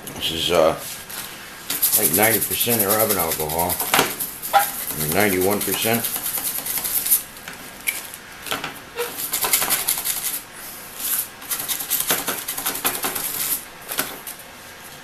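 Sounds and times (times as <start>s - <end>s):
toothbrush scrubbing circuit board: 1.8s - 3.8s, 4.5s - 7.2s.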